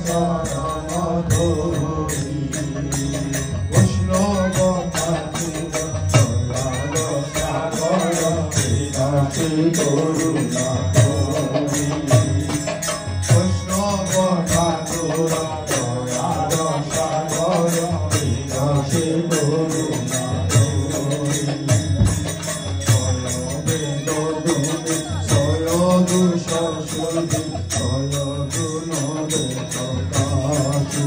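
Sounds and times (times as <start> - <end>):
harmonium chords: 0.0 - 31.0
jingling metal beat: 0.0 - 31.0
men singing into microphones: 0.0 - 31.0.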